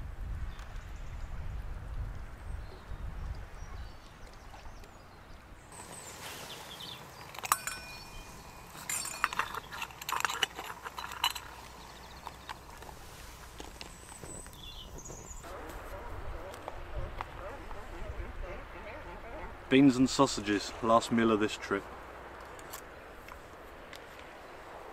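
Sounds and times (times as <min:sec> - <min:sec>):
metal pot clinking on windscreen: 0:05.7 - 0:14.9
metal rattles: 0:07.2 - 0:12.9.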